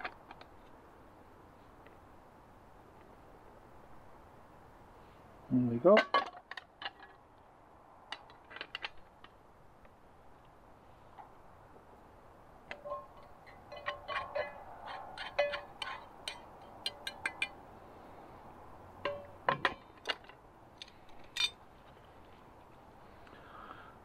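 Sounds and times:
metal spoon clinking on pot: 12.8s - 17.6s.

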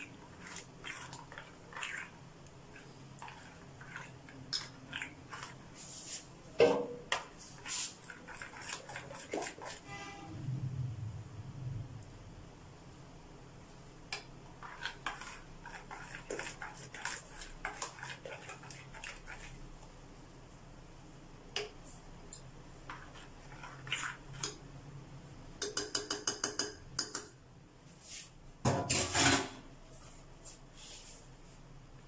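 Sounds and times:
spoon stirring in glass bowl: 0.0s - 6.3s, 7.0s - 9.9s, 14.1s - 19.8s, 21.6s - 24.7s, 25.6s - 27.4s.

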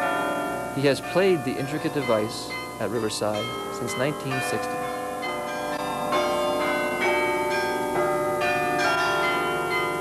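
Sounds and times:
carillon bells playing a melody: 0.0s - 10.0s.

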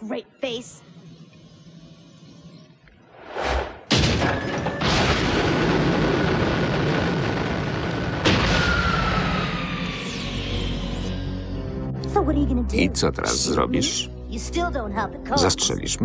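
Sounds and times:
loud boom with rumble: 3.9s - 9.9s.

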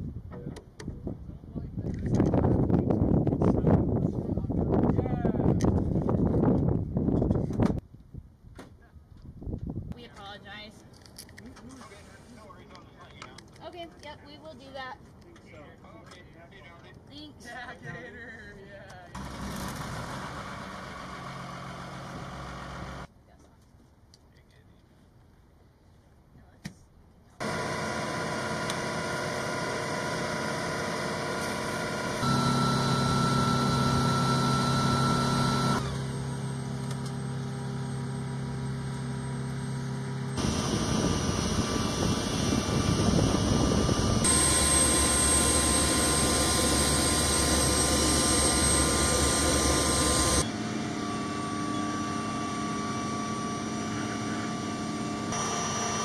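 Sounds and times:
turbine engine hum: 19.2s - 23.1s, 27.4s - 56.0s
high whining tones: 27.4s - 56.0s.

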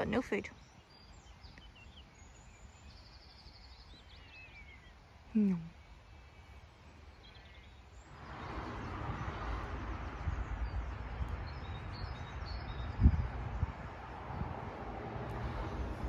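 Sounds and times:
faint bird chirps: 0.0s - 8.0s
wind rushing over microphone: 8.0s - 16.0s.

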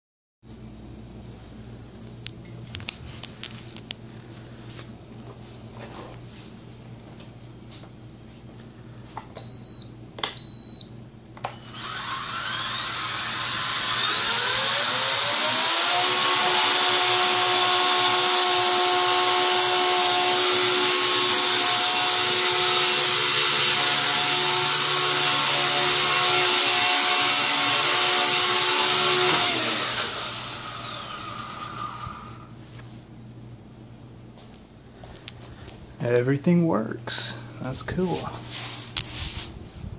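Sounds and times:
rc helicopter motor whine: 11.4s - 32.5s.

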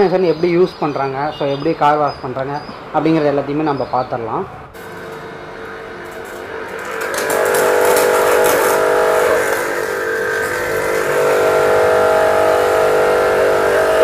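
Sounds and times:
pressure washer motor humming: 4.7s - 14.0s
water jet hissing: 4.9s - 14.0s.

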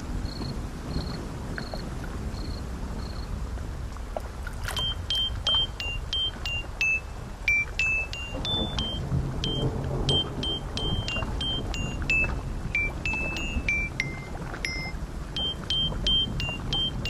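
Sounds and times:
steady rain: 0.0s - 17.0s
cricket chirping: 0.2s - 3.4s, 4.6s - 17.0s
high plinking notes: 4.7s - 17.0s.

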